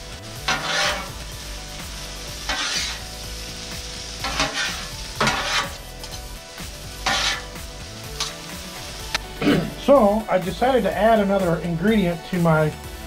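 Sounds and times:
food sizzling: 0.0s - 13.0s
metal spatulas scraping griddle: 0.3s - 1.3s, 2.4s - 3.2s, 4.2s - 6.2s, 7.0s - 8.4s.

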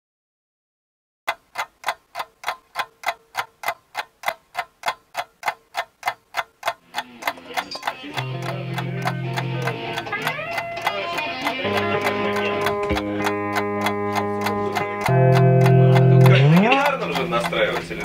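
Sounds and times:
clock ticking: 1.3s - 18.0s
plucked guitar-like music: 7.0s - 18.0s.

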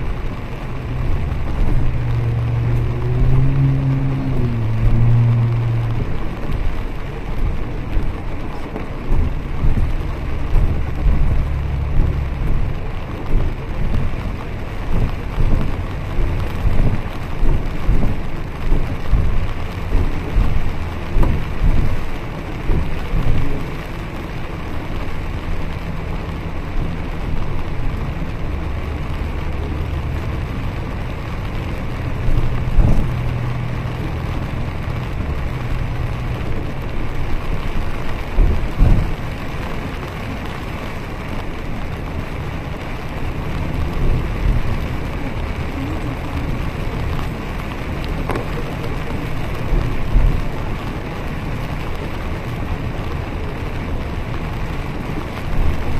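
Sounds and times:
bus engine low hum: 0.0s - 55.9s
rain on roof and windows: 0.0s - 55.9s
road noise: 0.0s - 55.9s
heavy thumps: 0.1s - 6.8s, 7.4s - 23.7s.

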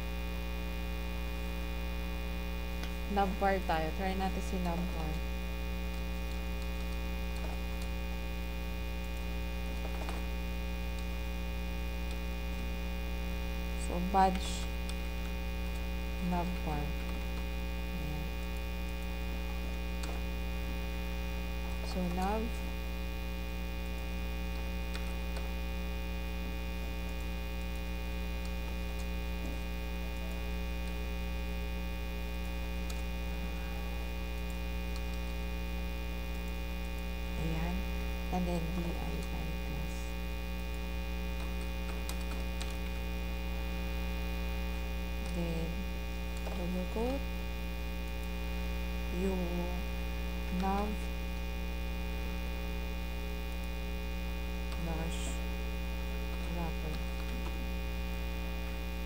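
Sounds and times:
electrical mains hum: 0.0s - 59.0s
murmured voice: 17.9s - 18.4s.

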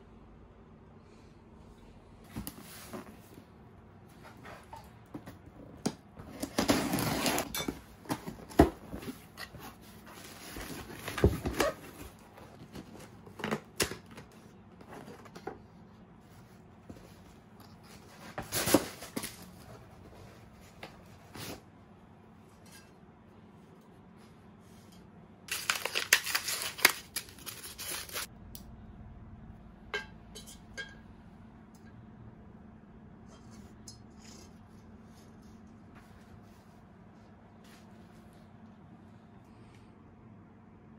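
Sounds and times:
cardboard rustling and tearing: 6.2s - 14.1s, 17.9s - 19.7s, 25.5s - 28.3s.

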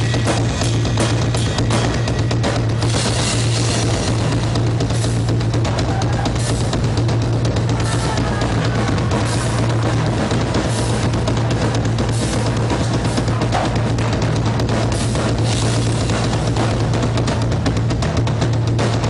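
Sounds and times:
rock drum solo: 0.0s - 19.0s
steady low drone: 6.3s - 18.3s.

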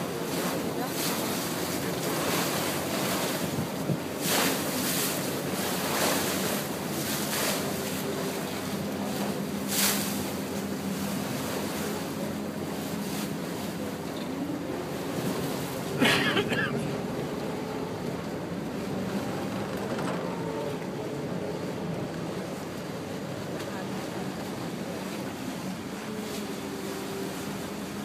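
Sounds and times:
motorboat engine hum: 0.0s - 28.0s
water rushing along hull: 0.0s - 28.0s
wind buffeting microphone: 2.0s - 5.6s.

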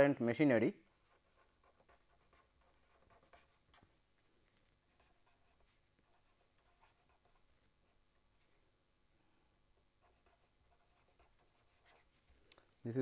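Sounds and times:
marker pen scratching on paper: 0.9s - 4.0s, 4.8s - 8.6s, 10.0s - 12.3s.

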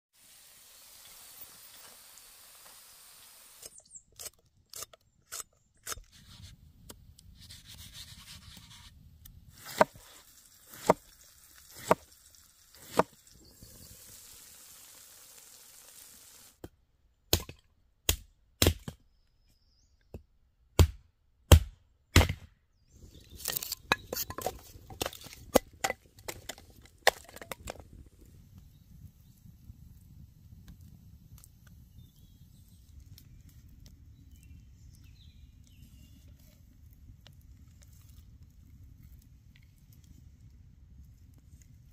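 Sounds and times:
soft hiss: 0.2s - 3.7s, 9.8s - 16.6s.

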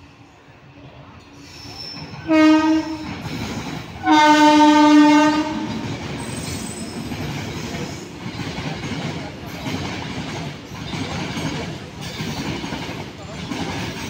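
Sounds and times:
locomotive horn blasts: 2.3s - 3.1s, 4.0s - 5.7s.

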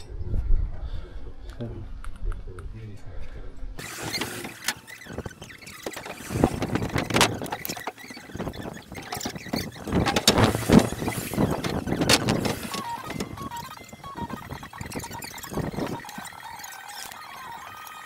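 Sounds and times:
squeaking scrapes: 3.8s - 18.0s.

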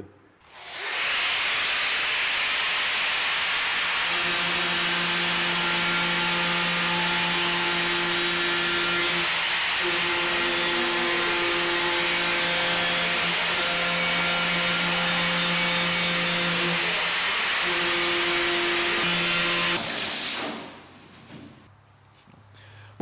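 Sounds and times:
angle grinder grinding fibreglass: 0.5s - 20.4s.

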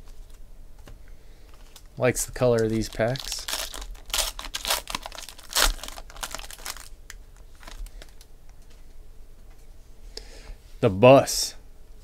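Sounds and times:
foil pack tearing and crinkling: 2.5s - 7.0s.

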